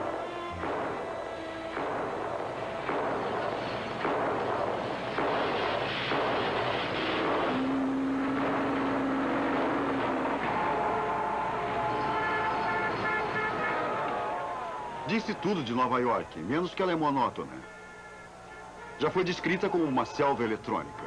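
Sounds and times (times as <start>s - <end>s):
rumbling city roar: 0.0s - 21.0s
low steady tone: 7.5s - 10.2s.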